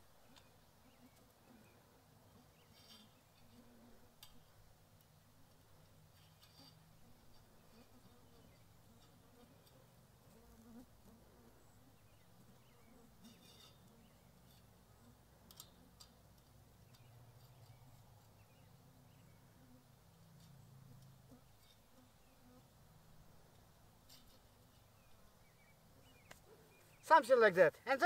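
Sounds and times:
faint insect buzzing: 0:00.3 - 0:16.0, 0:16.9 - 0:26.6
fence wire twisting clicks: 0:04.2 - 0:04.4, 0:13.2 - 0:14.7, 0:15.4 - 0:18.1
faint ticks: 0:04.2 - 0:11.2, 0:13.3 - 0:18.4, 0:20.3 - 0:21.8.

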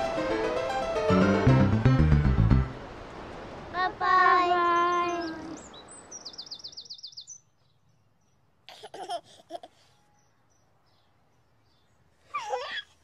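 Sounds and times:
children's song: 0:03.7 - 0:05.6
bird chirps: 0:04.7 - 0:08.4.

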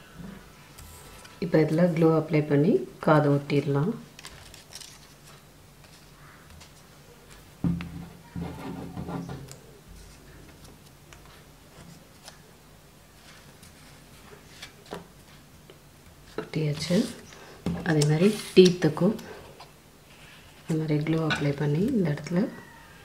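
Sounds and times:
paper rustling: 0:04.2 - 0:07.5, 0:13.1 - 0:15.5.

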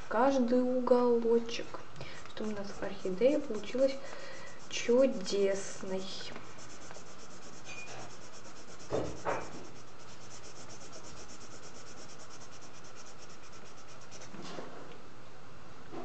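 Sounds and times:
marker scratching on paper: 0:02.1 - 0:14.4.

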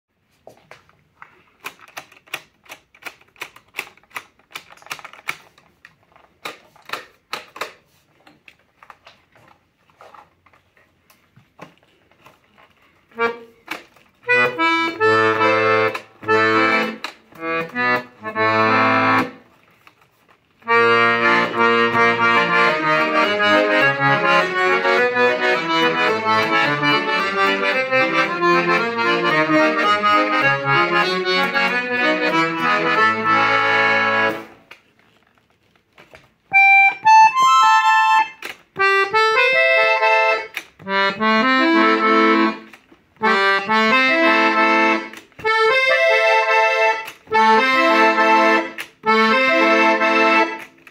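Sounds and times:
accordion clicks: 0:01.6 - 0:05.6, 0:06.4 - 0:07.8, 0:13.2 - 0:20.0, 0:20.6 - 0:34.8, 0:36.5 - 0:50.9
accordion playing melody and chords: 0:13.1 - 0:19.6, 0:20.6 - 0:34.8, 0:36.5 - 0:50.9.

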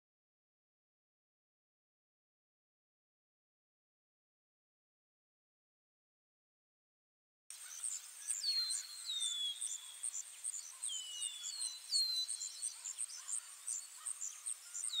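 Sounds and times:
insect chirping: 0:07.5 - 0:15.0
birds whistling: 0:07.6 - 0:15.0.

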